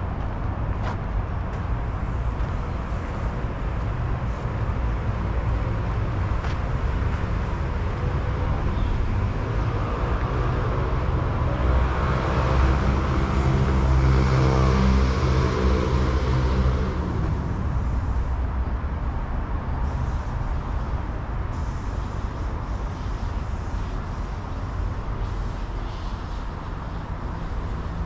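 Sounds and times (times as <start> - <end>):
vehicle approaching: 0.0 - 22.2
traffic rumble: 0.0 - 28.0.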